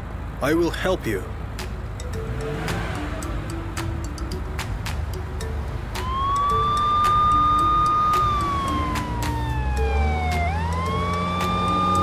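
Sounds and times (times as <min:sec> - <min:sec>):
police siren wailing: 0:05.2 - 0:12.0.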